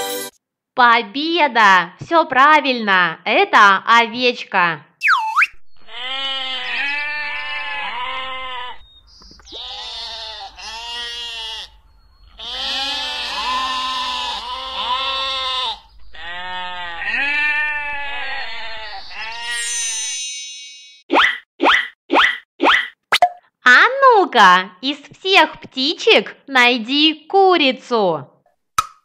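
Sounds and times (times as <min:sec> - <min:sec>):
sheep bleating: 0:05.8 - 0:08.8, 0:09.5 - 0:19.6.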